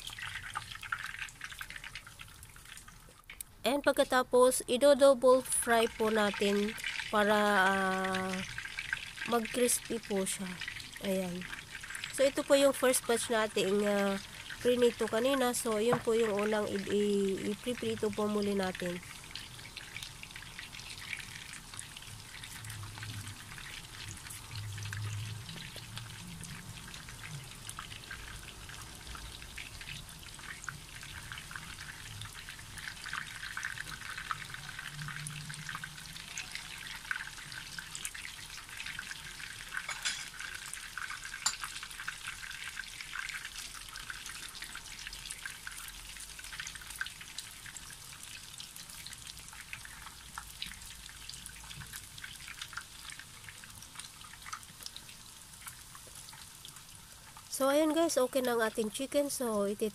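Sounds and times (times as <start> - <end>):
chicken crackling in hot oil: 0.0 - 3.5, 5.2 - 59.9.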